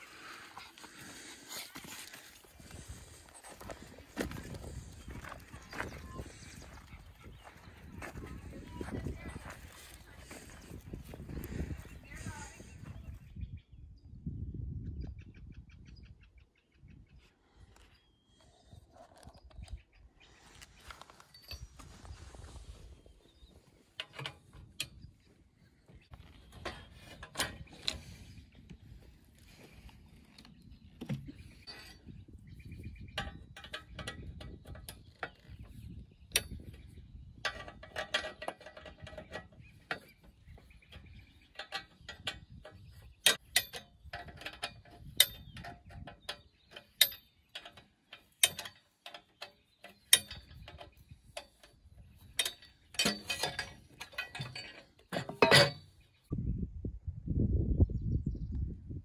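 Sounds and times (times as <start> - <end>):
metal clinks and rattles: 21.2 - 21.9, 31.6 - 56.1.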